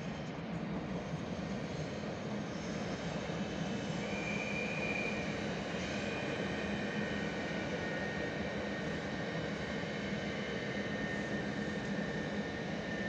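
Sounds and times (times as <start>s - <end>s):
high squeal: 4.0s - 5.4s.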